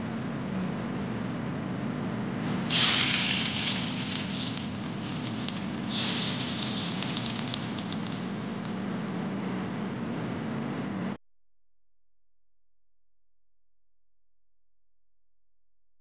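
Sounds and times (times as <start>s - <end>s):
steady background hum: 0.0s - 11.2s
food sizzling in hot oil: 2.4s - 8.8s.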